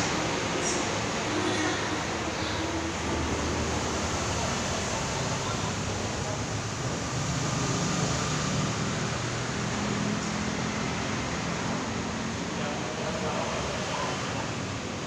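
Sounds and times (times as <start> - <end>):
faint indistinct voices: 0.0 - 7.3, 12.1 - 15.0
restaurant room rushing noise: 0.0 - 15.0.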